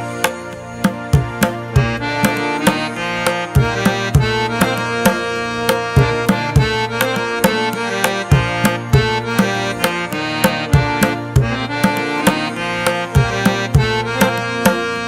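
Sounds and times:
held melodic notes: 0.0 - 15.0
drum beat: 3.6 - 12.4.

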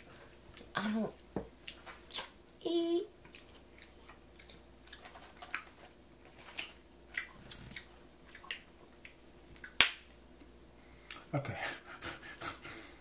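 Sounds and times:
mouth chewing with wet smacks: 3.2 - 5.8, 6.4 - 10.1.

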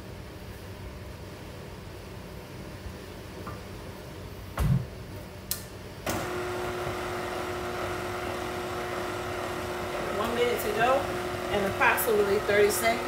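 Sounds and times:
mixer motor humming: 6.1 - 13.0.

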